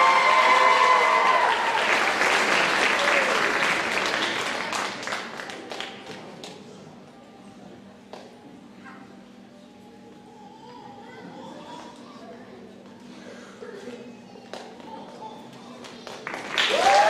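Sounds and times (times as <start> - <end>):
audience shouts: 0.0 - 2.2, 16.7 - 17.0
audience applauding: 0.0 - 6.0, 16.2 - 17.0.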